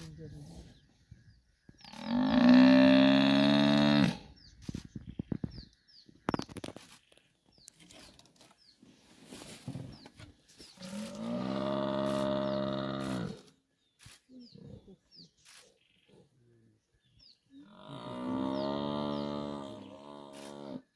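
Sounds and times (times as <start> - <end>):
bird chirping: 3.9 - 20.6
buffalo bellowing: 17.8 - 20.8.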